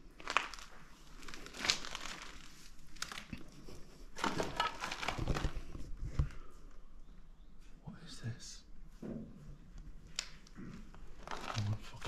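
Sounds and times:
debris crinkling and crunching: 0.0s - 5.8s, 10.2s - 12.0s.

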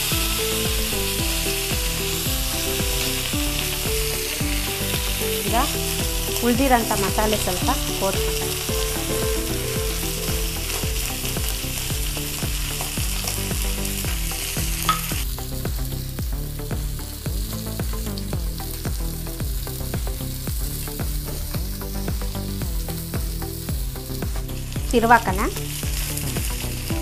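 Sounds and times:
fish sizzling in oil: 0.0s - 27.0s.

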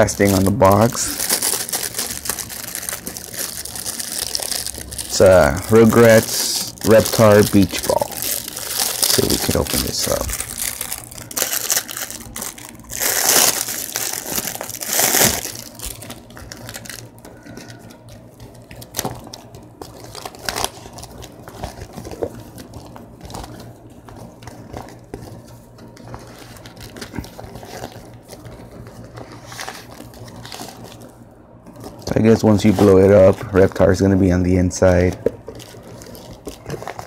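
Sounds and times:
plastic bag crinkling: 0.0s - 33.6s, 35.0s - 37.0s.

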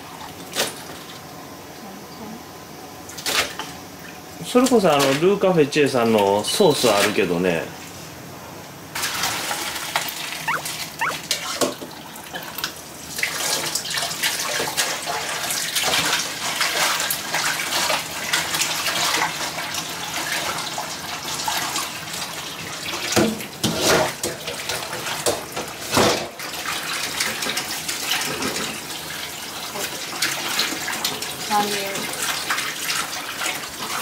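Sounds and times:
water running from a tap: 26.4s - 34.0s.

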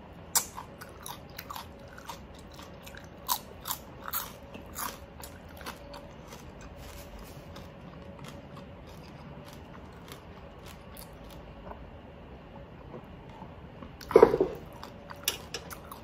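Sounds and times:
soft faint chewing: 0.4s - 11.9s
crunching: 0.8s - 11.8s.

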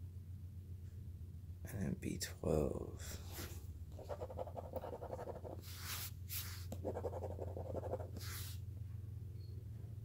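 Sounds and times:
scratching lottery ticket coating: 4.0s - 8.6s.

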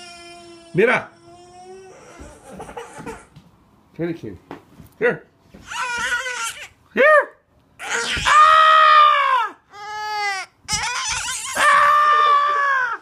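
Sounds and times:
toddler wailing: 0.0s - 3.2s, 5.6s - 6.7s, 7.8s - 13.0s.

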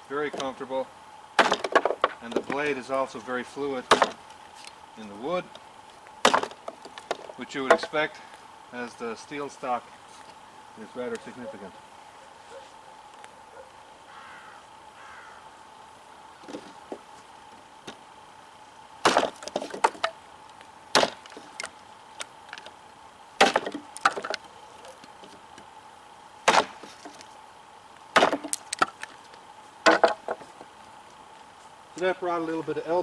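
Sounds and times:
knife chopping wooden block: 26.5s - 26.9s, 28.2s - 28.9s.

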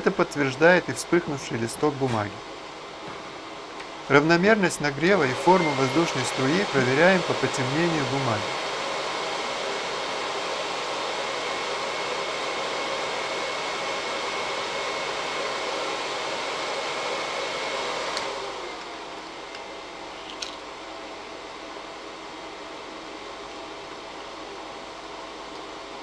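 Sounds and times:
heat gun fan blowing: 0.0s - 26.0s
faint high whine: 4.1s - 8.6s.

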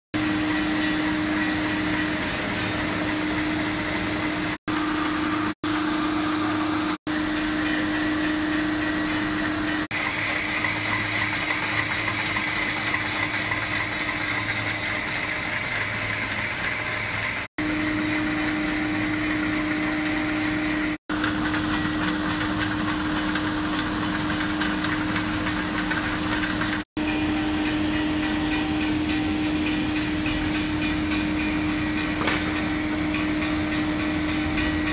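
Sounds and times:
motor hum: 0.2s - 34.9s
mechanical clatter: 7.3s - 17.5s, 21.1s - 34.9s.

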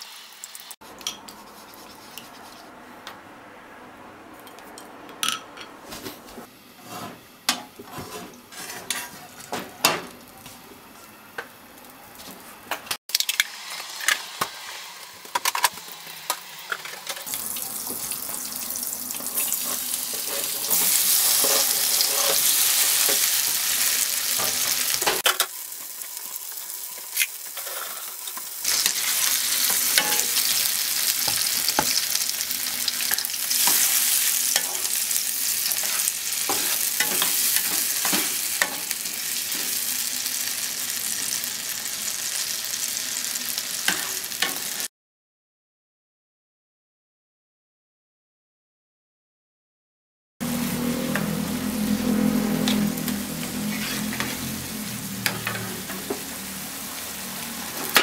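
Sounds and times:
tomatoes sizzling in a pan: 0.0s - 0.8s, 13.1s - 44.9s, 50.4s - 58.0s
spatula scraping and tapping pan: 6.8s - 10.0s, 19.2s - 23.3s, 28.8s - 30.4s, 35.6s - 38.9s.

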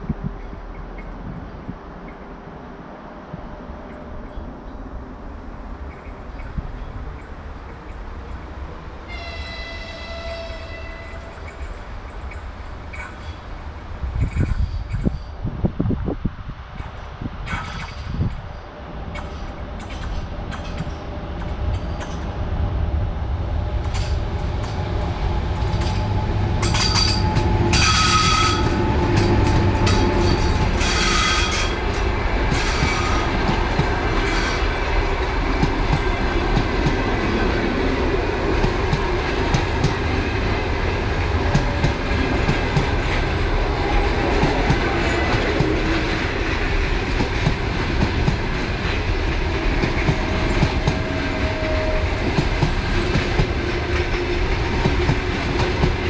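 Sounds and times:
train rumbling past: 0.0s - 56.0s
wheels clacking over rail joints: 23.8s - 56.0s.

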